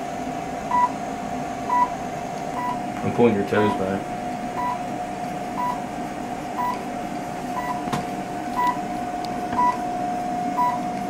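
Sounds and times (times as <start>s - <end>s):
steady device tone: 4.6s - 4.9s, 5.6s - 5.8s, 6.6s - 6.8s, 7.5s - 7.8s, 8.5s - 8.9s, 9.6s - 10.9s.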